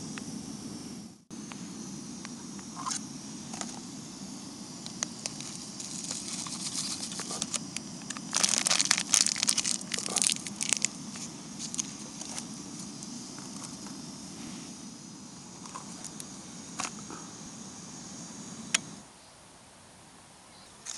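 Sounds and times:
gas stove burning: 0.0 - 19.1
foil pouch crinkling: 5.2 - 12.5.

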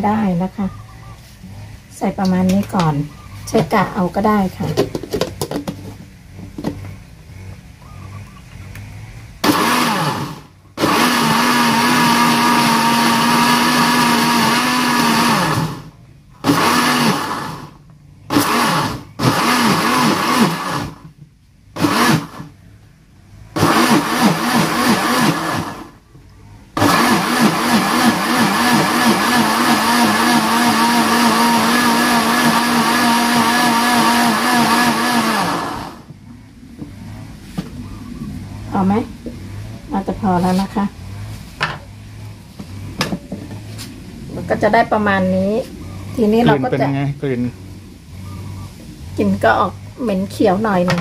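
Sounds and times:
blender motor whining: 8.8 - 21.1, 21.8 - 22.6, 23.5 - 26.0, 26.8 - 36.1.

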